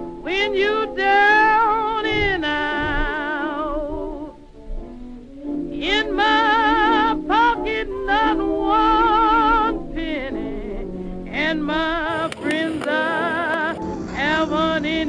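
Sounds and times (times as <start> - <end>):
music with vibrato melody: 3.0 - 12.2, 12.9 - 15.0.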